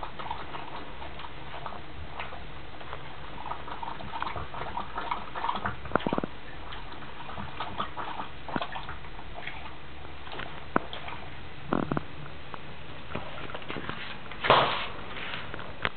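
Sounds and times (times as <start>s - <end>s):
dog lapping water from bowl: 0.0s - 12.2s.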